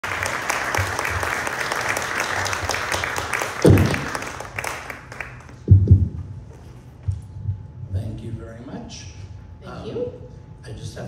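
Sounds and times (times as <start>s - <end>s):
audience applause: 0.0s - 5.6s
loud low thump: 3.6s - 4.2s, 5.7s - 6.3s.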